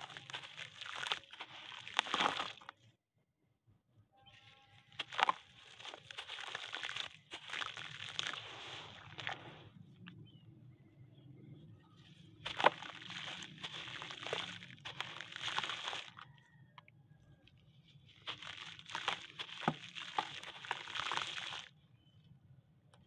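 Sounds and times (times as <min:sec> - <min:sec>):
dirt crunching and splashing: 0:00.0 - 0:02.9, 0:04.6 - 0:10.2, 0:11.4 - 0:16.6, 0:17.5 - 0:21.8.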